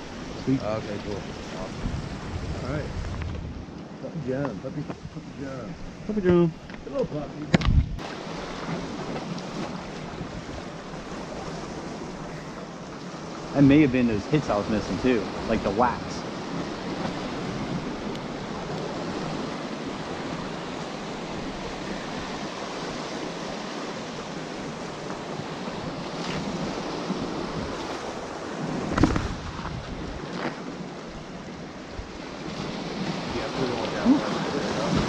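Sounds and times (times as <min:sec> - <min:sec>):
waves washing against rocks: 0:08.0 - 0:35.0.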